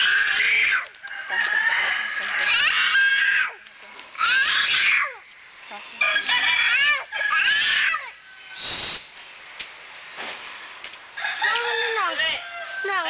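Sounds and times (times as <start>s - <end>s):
child crying out: 0.0s - 1.0s, 2.4s - 3.6s, 4.2s - 5.2s, 6.6s - 8.2s
brief hiss: 8.6s - 9.3s.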